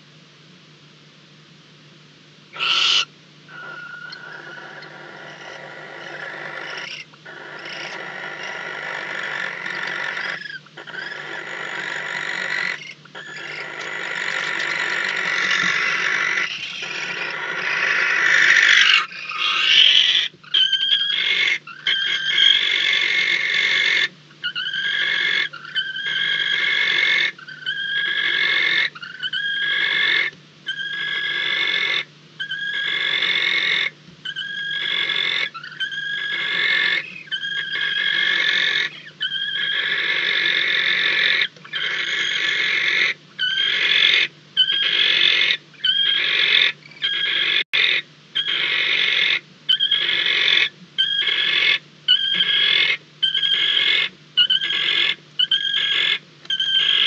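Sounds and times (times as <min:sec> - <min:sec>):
owls rasping hiss calls: 0:02.5 - 0:57.0.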